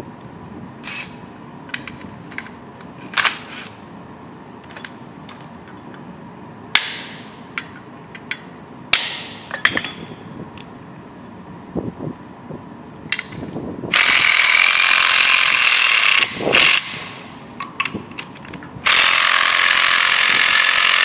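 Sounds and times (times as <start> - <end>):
hammer striking steel anchor: 6.8 - 7.8, 9.0 - 10.2
light metal taps and clinks: 9.5 - 10.3.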